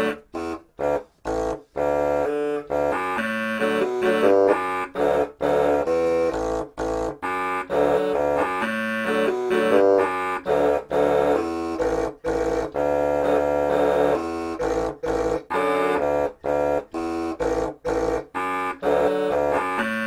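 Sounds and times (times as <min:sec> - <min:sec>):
air-powered horns playing chords: 0:00.0 - 0:20.0.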